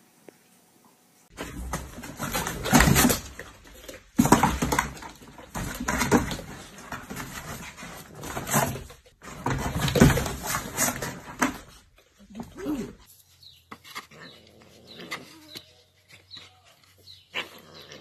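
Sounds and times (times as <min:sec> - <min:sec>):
dog pawing cardboard box: 0:01.3 - 0:13.1.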